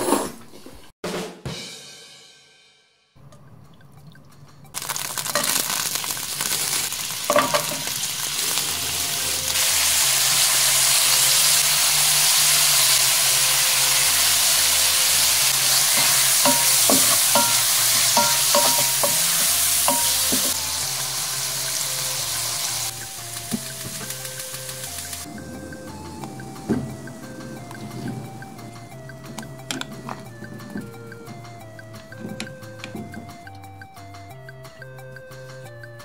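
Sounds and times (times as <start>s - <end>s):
meat sizzling in hot oil: 4.8s - 25.3s.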